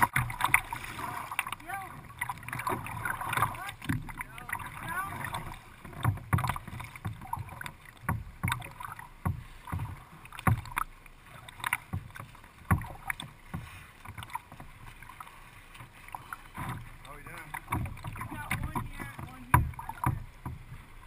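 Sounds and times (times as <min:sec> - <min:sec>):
paddle splashing water: 0:00.0 - 0:21.0
water slapping plastic hull: 0:00.0 - 0:21.0.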